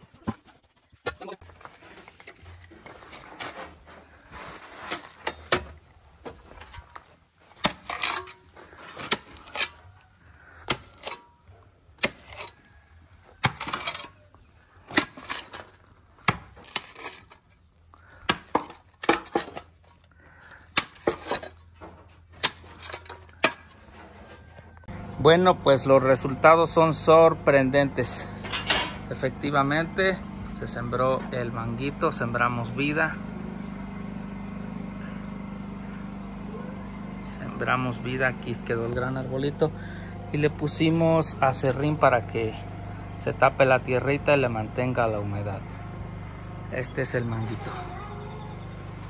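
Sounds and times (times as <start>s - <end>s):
shovel digging into rocky rubble: 2.9s - 6.9s, 7.5s - 9.8s, 10.6s - 11.4s, 12.0s - 12.6s, 13.4s - 14.2s, 14.8s - 17.5s, 18.2s - 19.8s, 20.7s - 21.6s, 22.4s - 23.8s.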